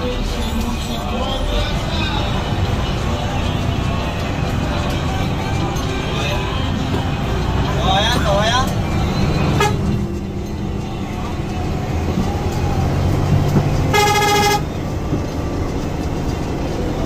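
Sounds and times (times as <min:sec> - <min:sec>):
bus diesel engine running: 0:00.0 - 0:17.0
horn blast: 0:09.5 - 0:10.0, 0:13.9 - 0:14.7.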